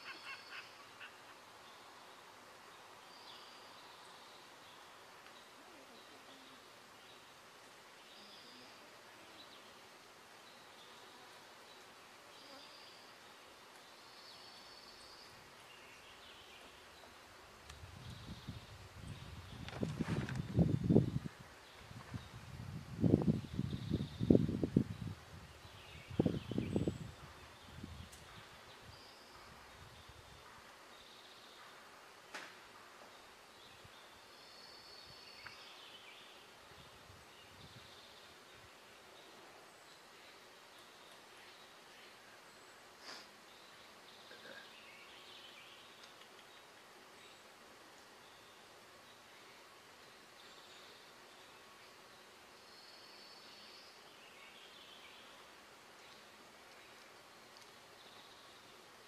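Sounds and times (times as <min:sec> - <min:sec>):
small tick: 0:46.0 - 0:46.5, 0:56.7 - 0:57.8.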